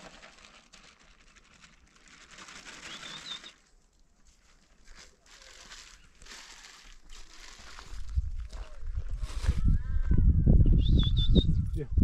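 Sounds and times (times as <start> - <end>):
faint rustling and crinkling: 0.0 - 9.8
bird chirp: 10.6 - 11.7.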